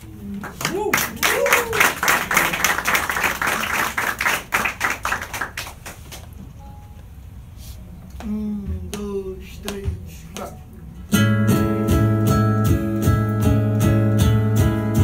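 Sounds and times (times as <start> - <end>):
audience applause: 0.4 - 6.3.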